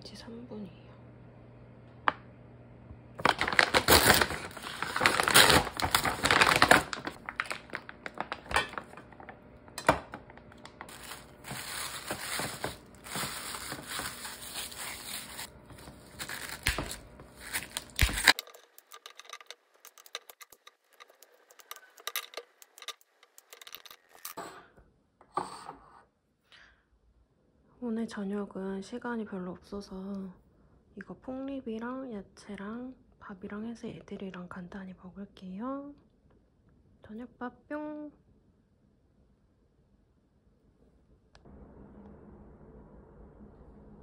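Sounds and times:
packaging tearing and crinkling: 0:03.2 - 0:24.4.

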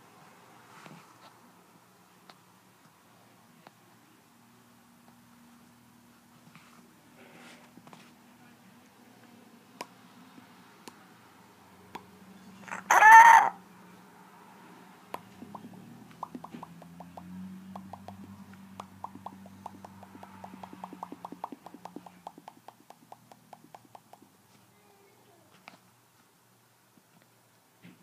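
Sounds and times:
faint low hum: 0:00.0 - 0:28.0
tongue clicks: 0:15.1 - 0:24.3.

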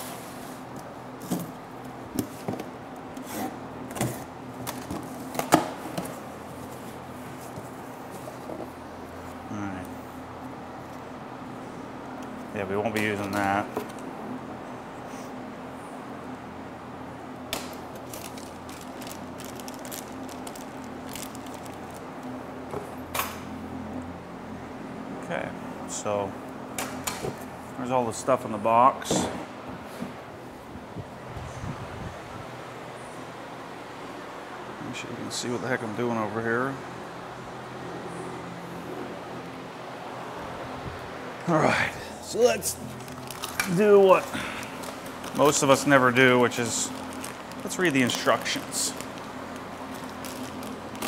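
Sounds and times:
steady low hum: 0:00.0 - 0:51.0
plastic packaging crinkling: 0:17.8 - 0:22.3, 0:42.6 - 0:51.0.

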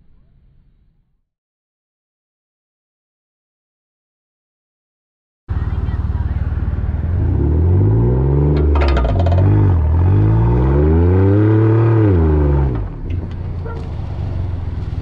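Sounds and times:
vehicle engine revving hard: 0:06.6 - 0:12.9
brief clatter: 0:08.5 - 0:09.8.

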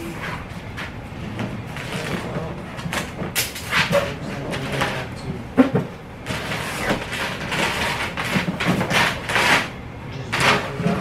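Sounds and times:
cardboard tearing: 0:06.3 - 0:09.7.

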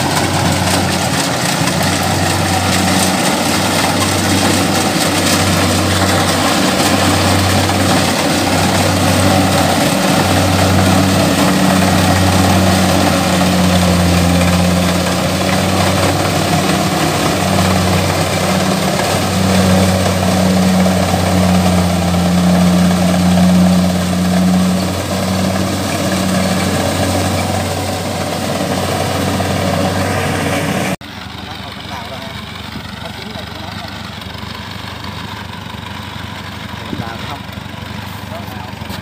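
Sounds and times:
combine harvester engine running: 0:00.0 - 0:39.0.

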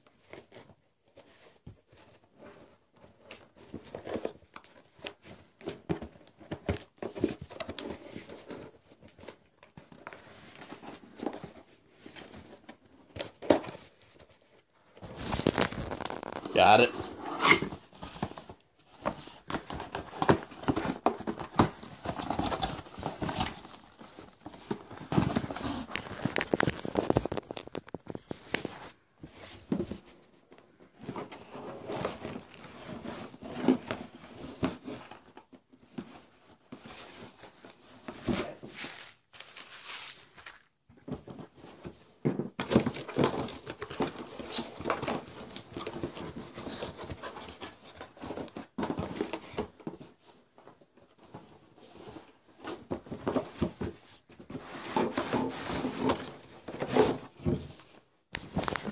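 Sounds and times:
cardboard box rustling and tearing: 0:15.0 - 0:28.8, 0:52.1 - 0:58.9.

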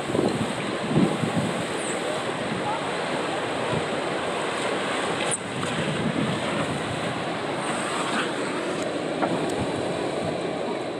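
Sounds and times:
wind on microphone: 0:00.0 - 0:02.8, 0:05.2 - 0:10.6
water rushing and splashing: 0:00.0 - 0:10.9.

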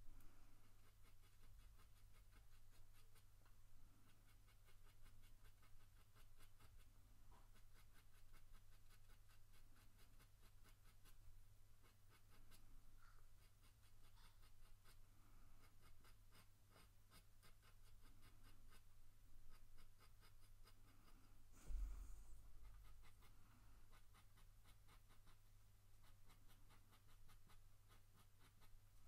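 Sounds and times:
pencil scratching on paper: 0:00.6 - 0:29.0
thump: 0:21.6 - 0:22.4.

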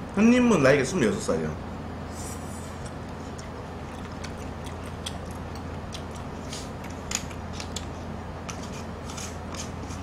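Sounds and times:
steady low hum: 0:00.0 - 0:10.0
chewing: 0:02.8 - 0:08.0.

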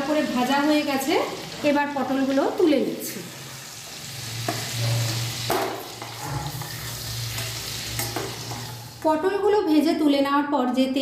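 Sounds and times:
oil sizzling: 0:00.0 - 0:09.6
metal spatula scraping a pan: 0:04.4 - 0:09.0.

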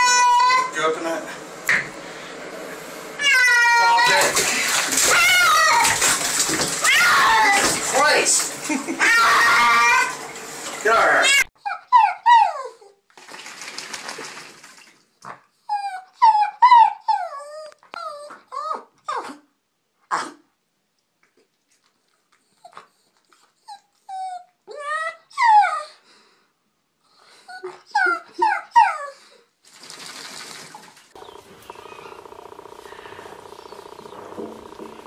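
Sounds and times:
dog whining and yowling: 0:03.2 - 0:07.9, 0:09.0 - 0:10.3, 0:11.4 - 0:13.0, 0:15.7 - 0:19.4, 0:22.5 - 0:26.0, 0:27.4 - 0:29.3.

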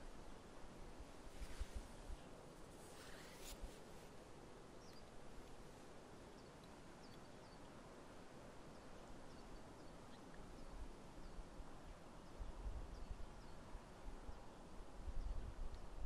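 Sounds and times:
open-air ambient hiss: 0:00.0 - 0:16.0
wind rumbling on microphone: 0:00.8 - 0:03.8, 0:12.3 - 0:16.0
birds chirping faintly: 0:02.6 - 0:15.6.

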